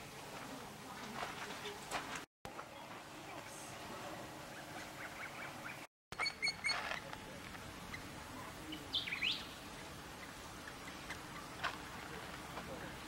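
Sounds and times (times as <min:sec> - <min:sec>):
birds chirping: 0:04.4 - 0:13.0.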